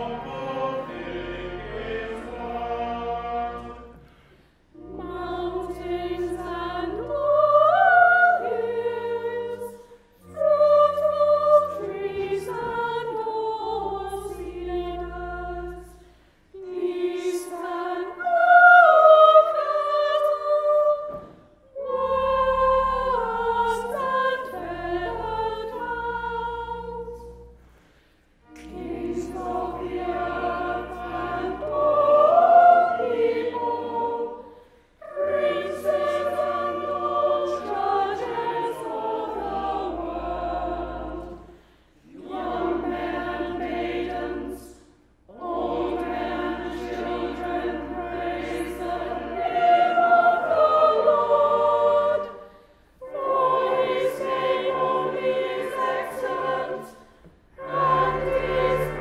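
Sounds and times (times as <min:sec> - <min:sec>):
organ accompaniment: 0:00.0 - 0:04.0, 0:57.6 - 0:59.0
mixed choir singing: 0:00.0 - 0:27.7, 0:28.4 - 0:59.0.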